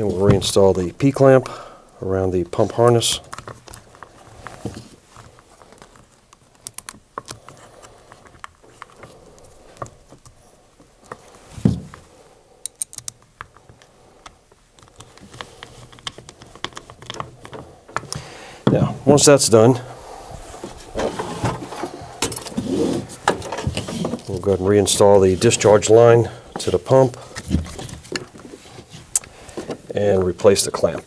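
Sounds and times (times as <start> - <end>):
clicks of handling plastic parts: 2.8 - 12.0, 12.6 - 18.8.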